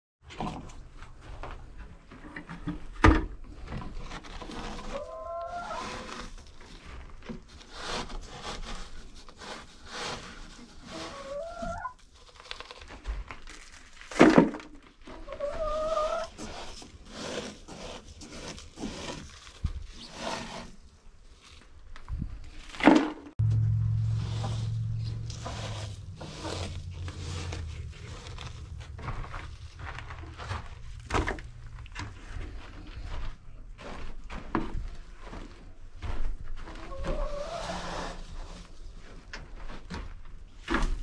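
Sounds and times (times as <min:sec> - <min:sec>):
scoop scraping through litter granules: 0:04.0 - 0:14.1, 0:15.1 - 0:21.6, 0:24.1 - 0:33.2
hens calling: 0:04.9 - 0:05.8, 0:15.3 - 0:16.3.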